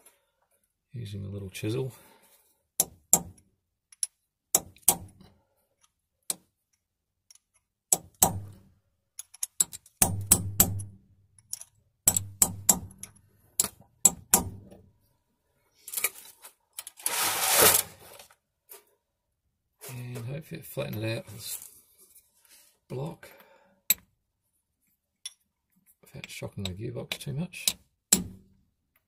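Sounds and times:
chisel tapping metal: 0:02.8 - 0:05.3, 0:09.2 - 0:14.8, 0:23.9 - 0:24.1, 0:26.6 - 0:28.4
rasping metal scrape: 0:17.0 - 0:18.2.

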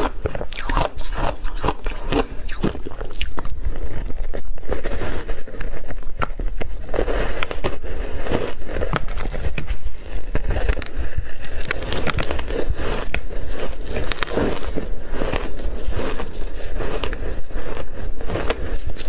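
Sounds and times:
ice being bitten and crunched: 0:00.0 - 0:19.0
ice chewed in mouth: 0:00.0 - 0:19.0.

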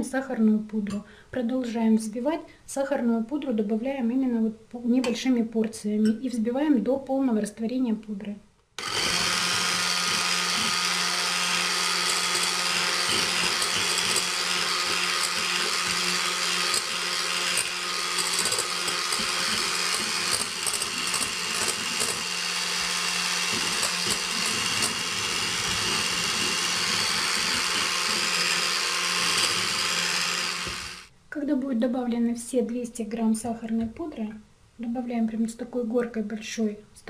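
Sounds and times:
electric hand mixer running: 0:08.8 - 0:31.1.

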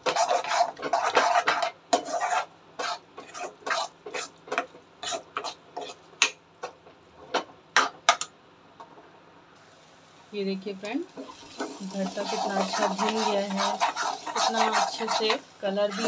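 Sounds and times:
steel spoon scraping in pan: 0:00.0 - 0:06.1, 0:11.2 - 0:16.0.

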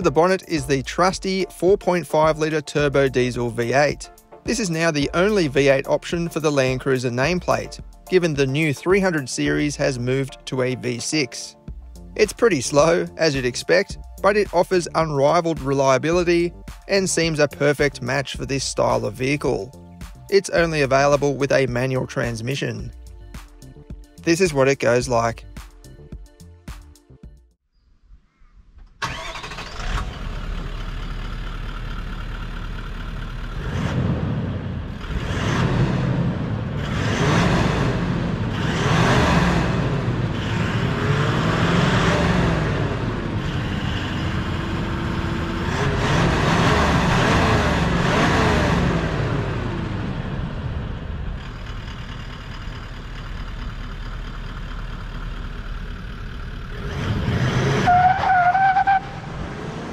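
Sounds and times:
diesel engine idling and revving: 0:29.0 - 0:59.9.

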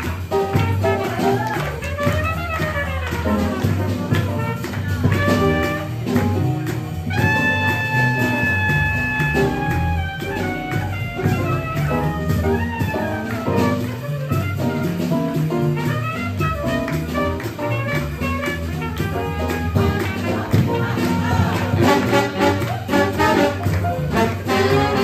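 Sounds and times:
swing jazz band playing: 0:00.0 - 0:25.0
horn long high note: 0:16.2 - 0:25.0.

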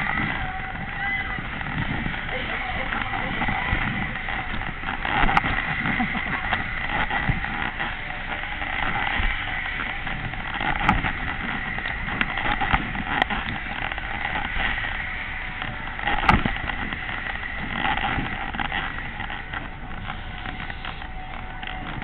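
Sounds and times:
fairground ride rushing noise: 0:00.0 - 0:22.0
sharp clanks of ride: 0:00.0 - 0:22.0.

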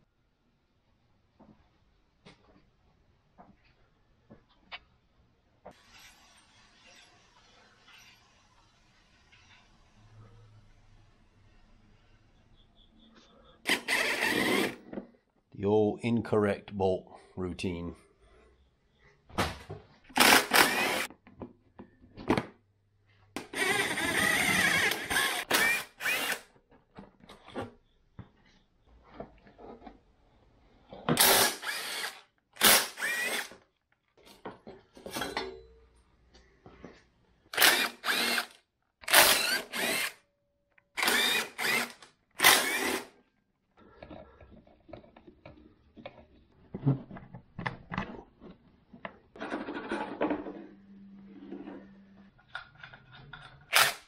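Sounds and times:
cordless drill running: 0:13.7 - 0:14.8, 0:20.2 - 0:21.1, 0:23.4 - 0:26.5, 0:31.2 - 0:33.6, 0:37.5 - 0:40.2, 0:41.0 - 0:43.1, 0:53.7 - 0:54.0.

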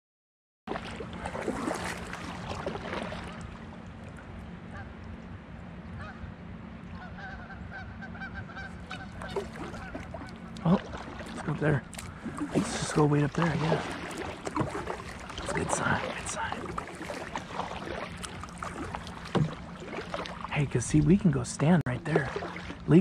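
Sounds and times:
geese honking: 0:07.0 - 0:11.2.

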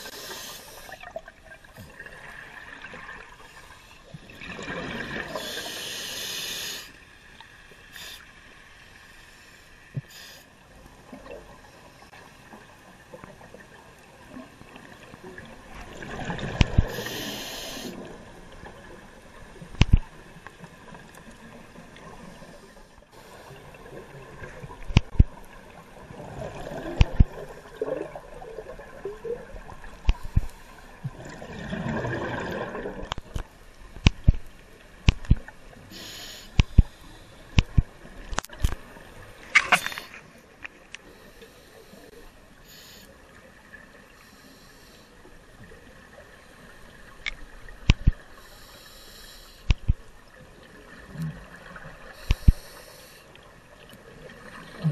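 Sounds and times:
scuba regulator breathing underwater: 0:00.0 - 0:01.0, 0:05.2 - 0:07.0, 0:16.7 - 0:18.1, 0:35.9 - 0:37.6, 0:48.3 - 0:49.8, 0:52.1 - 0:53.3
sharp clicks: 0:33.1 - 0:35.4.

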